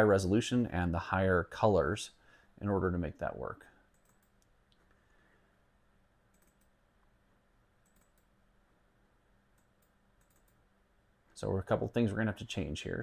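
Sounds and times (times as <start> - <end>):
computer mouse clicks: 3.9 - 5.0, 6.3 - 6.8, 7.8 - 8.3, 9.5 - 10.6.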